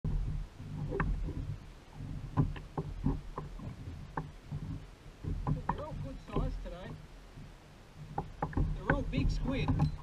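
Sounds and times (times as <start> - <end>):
low steady rumble: 0.0 - 10.0
water knocking against plastic hull: 0.0 - 10.0.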